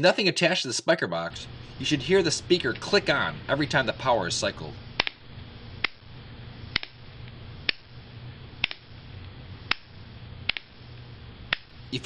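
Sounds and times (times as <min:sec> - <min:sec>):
low steady hiss: 0:00.0 - 0:12.0
speaker clicking: 0:02.6 - 0:03.0, 0:04.9 - 0:08.0, 0:08.6 - 0:11.8.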